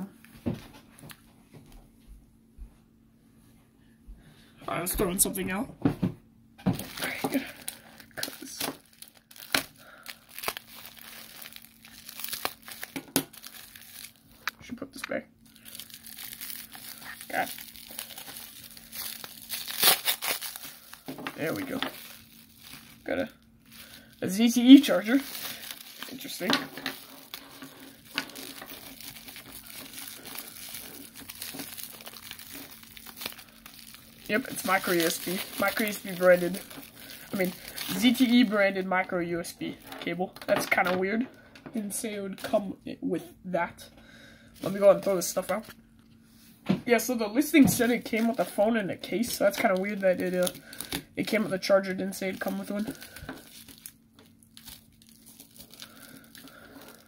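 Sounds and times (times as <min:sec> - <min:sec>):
plastic wrapping crinkling: 0:06.7 - 0:14.6, 0:15.4 - 0:40.9, 0:44.6 - 0:45.8, 0:47.4 - 0:57.0.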